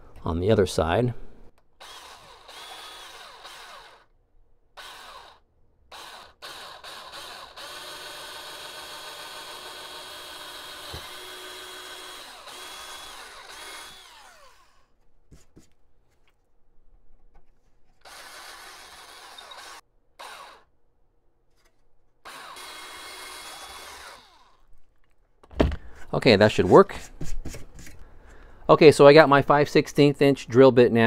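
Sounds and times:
cordless drill whining: 1.8s - 4.1s, 4.8s - 14.9s, 18.0s - 20.7s, 22.2s - 24.7s.

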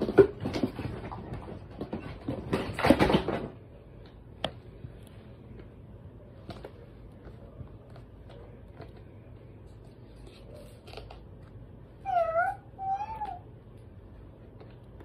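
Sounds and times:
low steady hum: 0.0s - 15.0s
faint clicks and taps: 6.4s - 11.6s, 13.2s - 15.0s.

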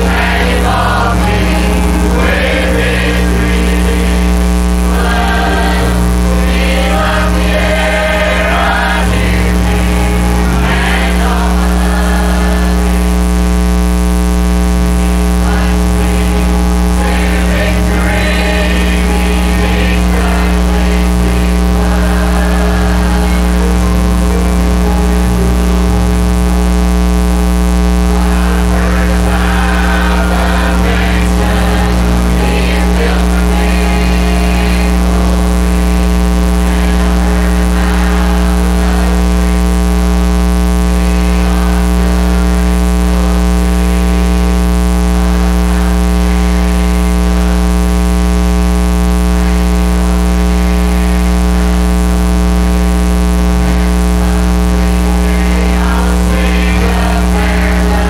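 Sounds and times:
faint choir singing: 0.0s - 13.2s, 15.0s - 25.6s, 28.1s - 39.9s, 40.7s - 44.4s, 45.2s - 46.8s, 53.6s - 58.0s
electrical mains hum: 0.0s - 58.0s
piano and guitar accompaniment: 4.9s - 12.8s, 15.4s - 26.2s.

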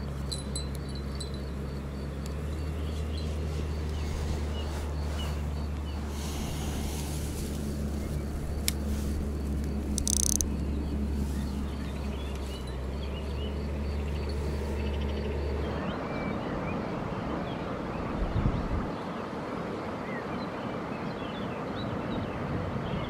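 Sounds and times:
low drone like distant engine: 0.0s - 23.0s
insect ticking: 6.6s - 12.6s.

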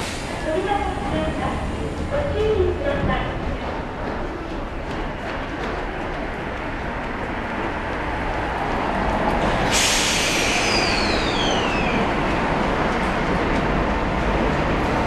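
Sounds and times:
air brakes hissing: 0.0s - 0.5s, 9.6s - 12.0s
train rumble: 0.0s - 15.0s.

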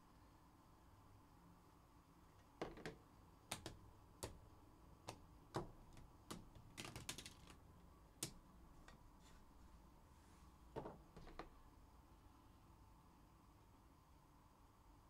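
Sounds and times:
faint keyboard typing: 2.6s - 9.1s.

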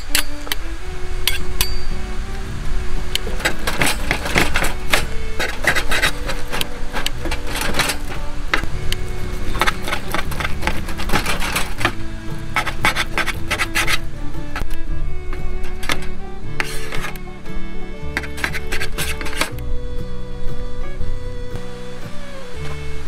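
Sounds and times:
background music: 0.0s - 23.0s
metal turner scraping griddle: 3.1s - 19.6s.

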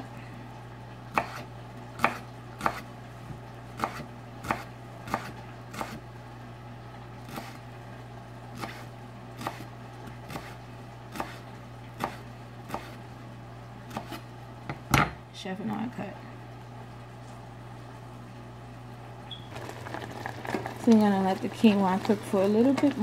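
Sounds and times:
knife chopping on cutting board: 1.1s - 2.9s, 3.8s - 6.0s, 8.6s - 9.7s, 10.3s - 11.4s, 12.0s - 13.0s, 13.9s - 15.1s.

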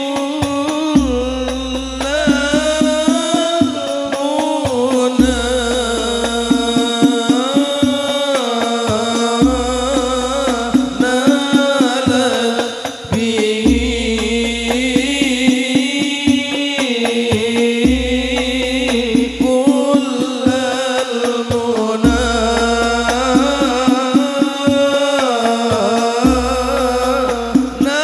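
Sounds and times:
man singing wavering notes: 0.0s - 16.0s, 17.4s - 28.0s
frame drum strokes: 0.0s - 28.0s
deep bass tone: 1.0s - 3.5s, 5.2s - 6.8s, 22.1s - 23.9s.

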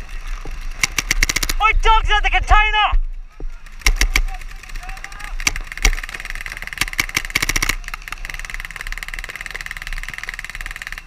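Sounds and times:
paintball markers firing: 0.4s - 1.6s, 3.6s - 11.0s.

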